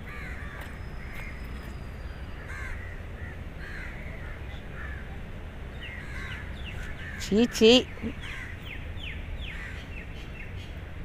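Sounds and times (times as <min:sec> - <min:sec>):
crows cawing: 0:00.0 - 0:01.4, 0:02.4 - 0:05.1, 0:05.9 - 0:08.6.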